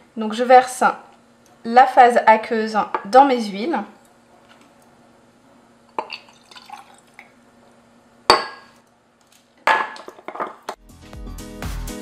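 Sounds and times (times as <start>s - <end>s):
liquid trickling into glass: 6.0s - 7.3s
glassware clattering knock: 8.3s - 8.7s, 9.7s - 10.7s
background music: 10.8s - 12.0s.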